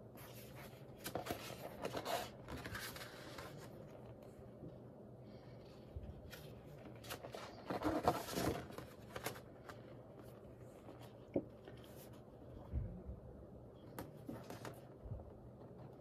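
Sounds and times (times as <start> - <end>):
paper pages rustling: 0.1 - 4.3, 6.1 - 12.4.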